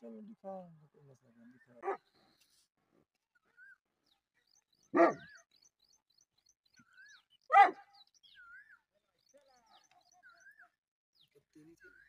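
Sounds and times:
large dog barking: 4.9 - 5.4, 7.5 - 7.9.

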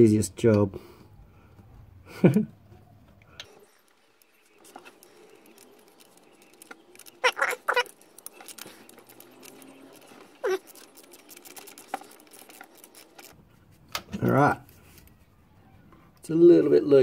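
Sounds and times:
scratchy handling noises: 3.4 - 16.2.

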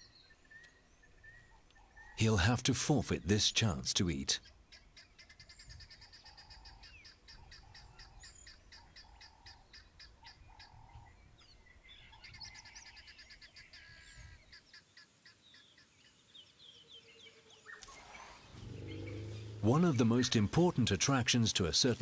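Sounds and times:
birds chirping and whistling: 15.5 - 20.5
low rumble: 18.6 - 20.0.

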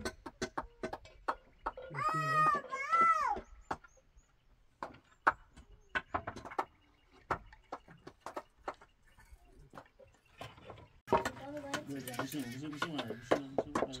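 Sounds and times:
wooden planks knocking: 4.8 - 9.0, 9.7 - 14.0.

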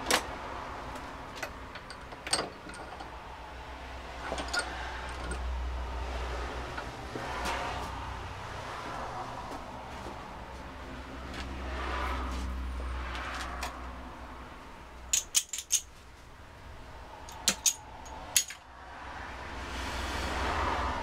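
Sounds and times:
small metal objects clinking: 15.1 - 15.9, 17.3 - 18.6.

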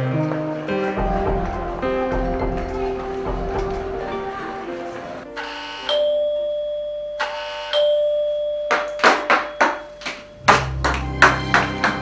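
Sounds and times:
doorbell ringing: 5.4 - 10.8.

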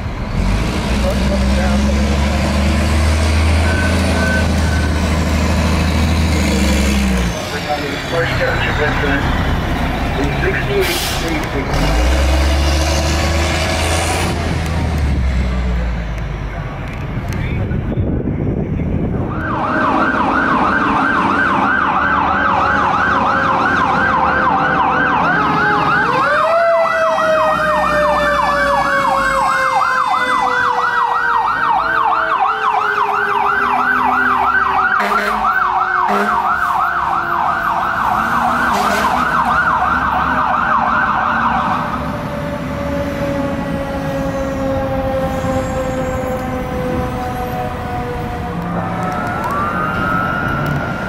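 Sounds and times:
wailing siren: 1.0 - 10.8, 19.0 - 51.0
electronic yelp siren: 3.6 - 5.2, 19.2 - 51.0.

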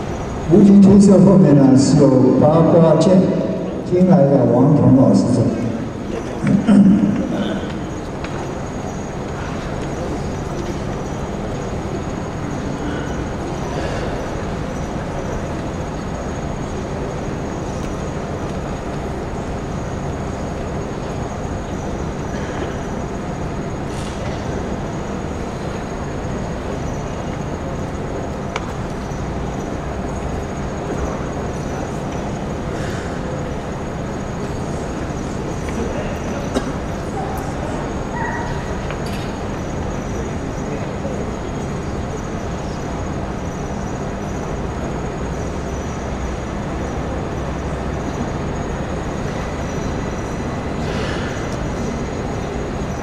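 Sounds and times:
rumbling sports hall ambience: 0.0 - 53.0.

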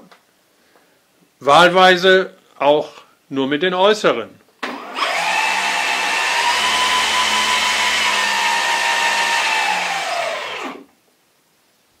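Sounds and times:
electric propeller motors whining: 4.8 - 10.8.

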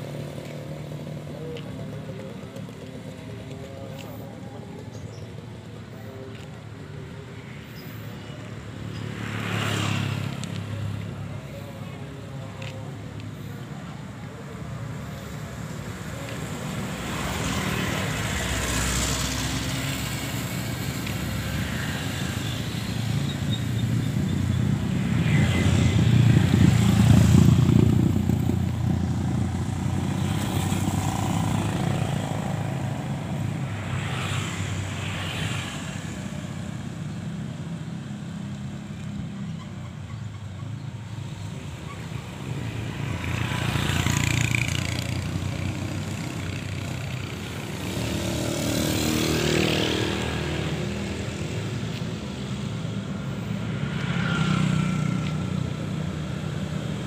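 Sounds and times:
motorcycles riding past: 8.2 - 13.1, 15.5 - 39.4, 41.2 - 57.0.

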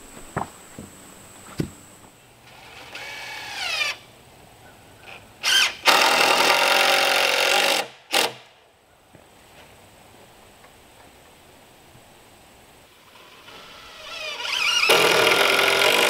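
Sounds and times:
cordless drill driving screws: 2.5 - 4.0, 13.2 - 16.0.

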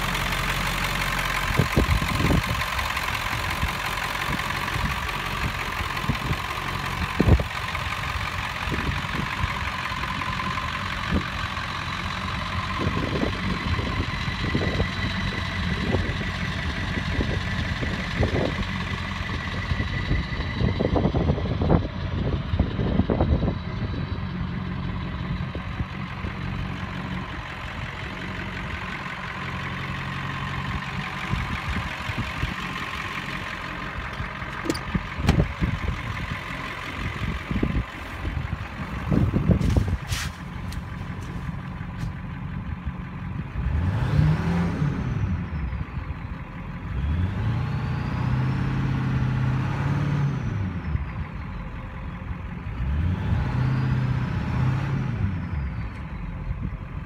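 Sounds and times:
engine revving: 0.0 - 37.8, 38.6 - 45.8, 46.8 - 51.3, 52.4 - 56.2
engine knocks: 0.0 - 44.0
diesel engine idling: 0.0 - 57.0.

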